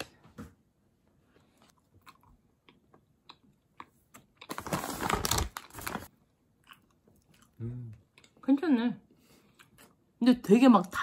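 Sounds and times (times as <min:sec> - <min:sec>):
packaging rustling: 0:04.5 - 0:06.1.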